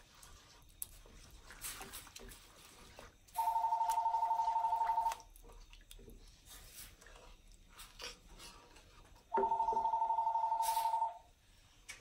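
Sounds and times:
wooden spoon stirring sauce: 0:00.0 - 0:03.8
telephone ringing: 0:03.4 - 0:05.2, 0:09.3 - 0:11.3.

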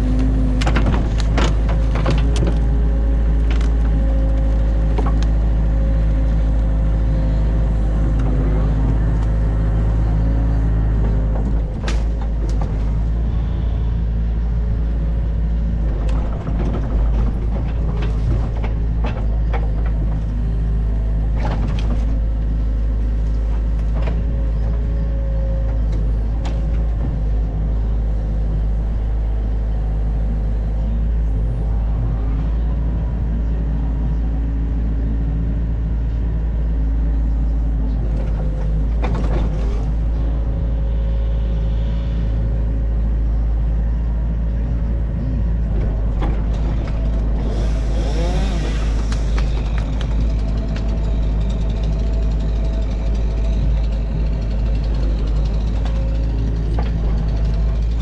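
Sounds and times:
excavator diesel engine running: 0:00.0 - 0:58.0
knocks and clanks: 0:00.2 - 0:02.8.

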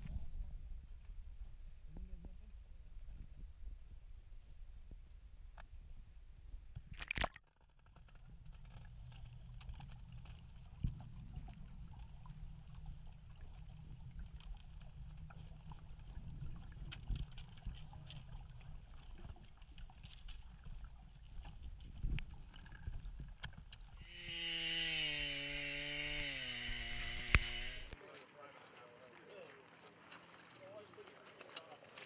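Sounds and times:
underwater low rumble: 0:08.2 - 0:24.0.

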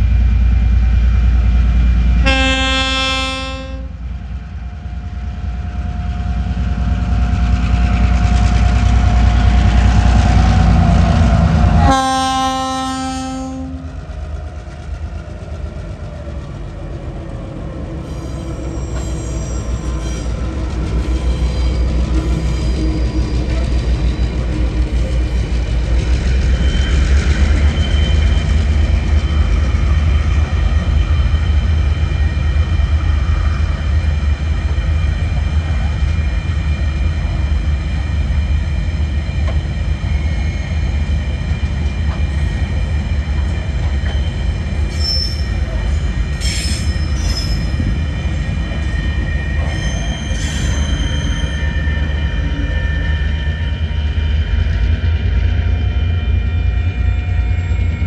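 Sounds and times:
freight train rumbling: 0:00.0 - 0:58.0
wheel squeals: 0:18.1 - 0:20.5, 0:44.0 - 0:48.0, 0:48.8 - 0:52.4.

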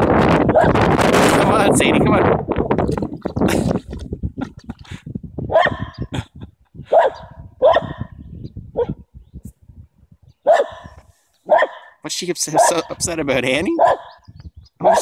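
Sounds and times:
dog barking: 0:05.5 - 0:06.0, 0:06.9 - 0:08.2, 0:08.8 - 0:09.0, 0:10.4 - 0:13.0, 0:13.8 - 0:14.2.

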